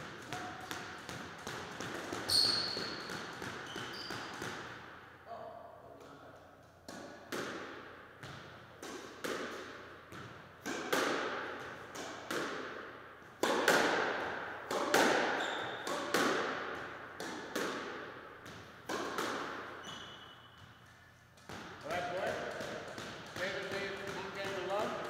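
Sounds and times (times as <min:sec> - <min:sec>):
squash ball hits: 0:00.0 - 0:05.0, 0:06.8 - 0:25.0
shoe squeak: 0:02.2 - 0:04.4, 0:15.3 - 0:15.9, 0:19.8 - 0:21.1.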